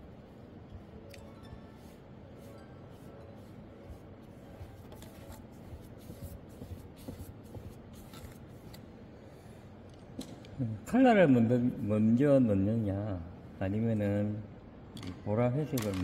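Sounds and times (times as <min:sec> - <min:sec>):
brush swishing over paper: 0:01.6 - 0:08.8.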